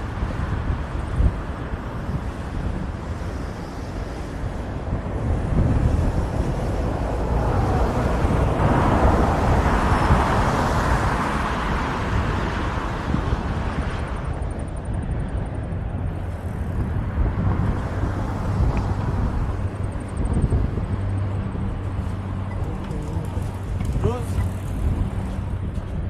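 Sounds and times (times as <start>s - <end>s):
road traffic: 0.0s - 26.0s
wind rumble on microphone: 0.0s - 26.0s
inline skates rolling on pavement: 14.2s - 26.0s.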